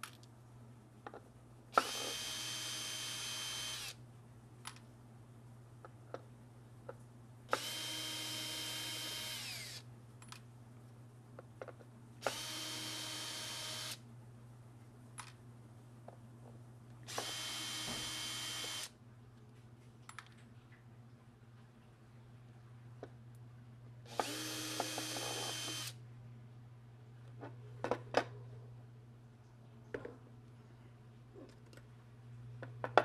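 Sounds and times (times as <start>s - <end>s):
drill motor whine: 1.8s - 4.0s, 7.5s - 9.8s, 12.2s - 14.0s, 17.1s - 18.9s, 24.1s - 26.0s.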